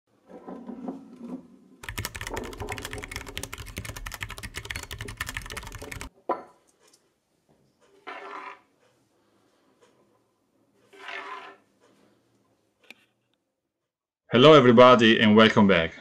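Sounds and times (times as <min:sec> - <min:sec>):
keyboard typing clicks: 0:01.8 - 0:06.1.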